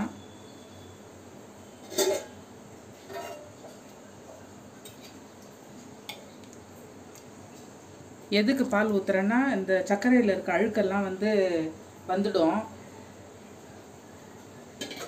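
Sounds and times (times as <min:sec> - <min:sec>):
low steady hiss: 0:00.0 - 0:15.0
kitchen utensils clinking: 0:01.8 - 0:02.4, 0:03.0 - 0:03.8, 0:14.8 - 0:15.0.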